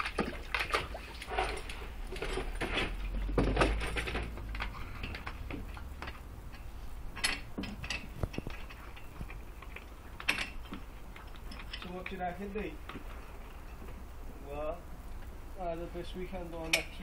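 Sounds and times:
dog splashing water in bucket: 0.0 - 3.8.

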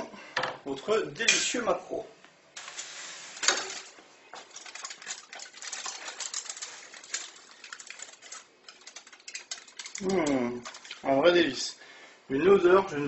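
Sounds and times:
aluminium foil crinkling: 2.6 - 11.2.

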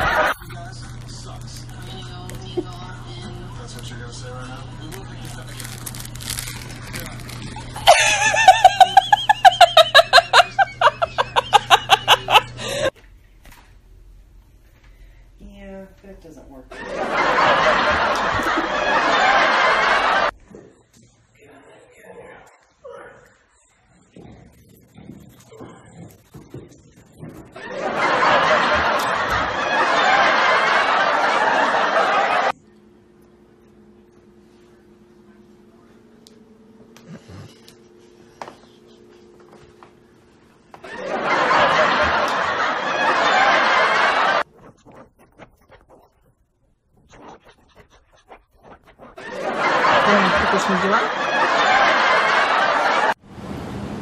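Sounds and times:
person giggling: 7.6 - 12.9, 49.2 - 51.1
breathless human laughter: 7.8 - 12.9.

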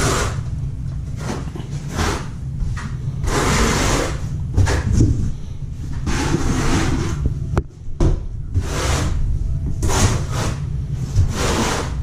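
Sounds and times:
trowel scraping: 0.0 - 0.4, 1.2 - 2.4, 3.2 - 5.1, 6.0 - 7.2, 8.6 - 9.2, 9.8 - 12.0
low rumble: 0.0 - 12.0.

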